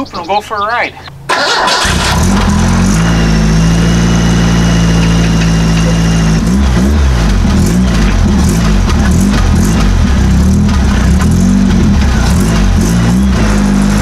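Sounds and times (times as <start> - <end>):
car engine idling: 1.1 - 14.0.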